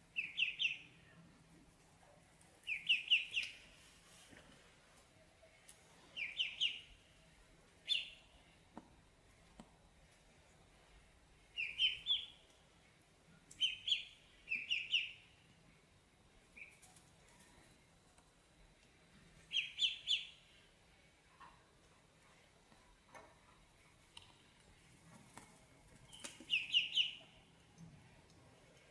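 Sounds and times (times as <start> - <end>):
ducklings peeping: 0.2 - 0.9, 2.7 - 3.6, 6.2 - 6.9, 11.5 - 12.4, 13.5 - 15.2, 19.5 - 20.5, 26.2 - 27.3.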